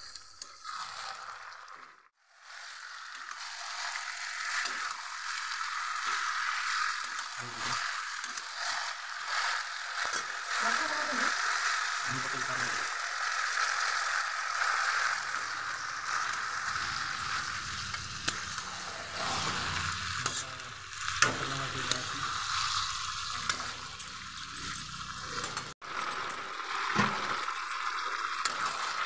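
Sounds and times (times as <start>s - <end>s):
curry sizzling in a pan: 0.0s - 29.0s.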